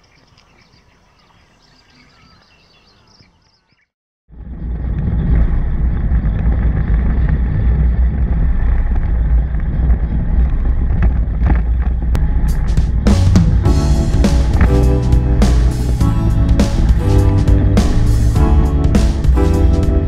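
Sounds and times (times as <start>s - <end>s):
motorcycle engine and road rumble: 4.3s - 20.0s.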